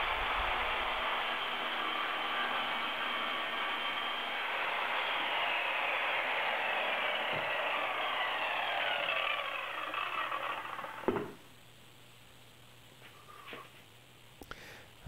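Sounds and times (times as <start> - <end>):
circular saw cutting: 0.0 - 11.2.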